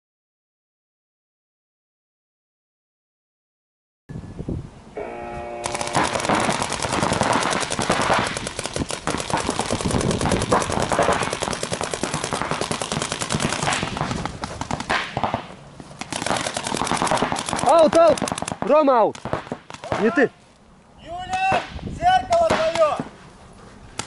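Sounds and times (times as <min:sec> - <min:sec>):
brief tone: 0:04.1 - 0:05.7
paintball markers firing: 0:05.7 - 0:20.2.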